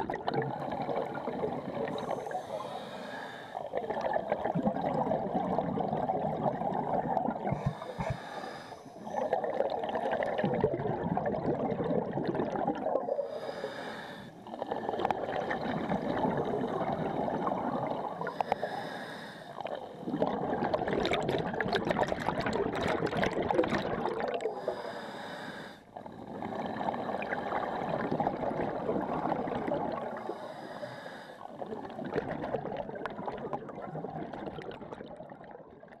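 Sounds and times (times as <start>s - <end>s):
exhaled bubbles rushing: 0.0s - 2.4s, 3.6s - 8.2s, 9.0s - 13.2s, 14.4s - 18.3s, 19.6s - 24.6s, 26.0s - 30.3s, 31.5s - 36.0s
regulator inhale hiss: 1.9s - 3.6s, 7.6s - 9.2s, 13.3s - 14.4s, 18.2s - 19.6s, 24.6s - 26.4s, 30.2s - 31.4s.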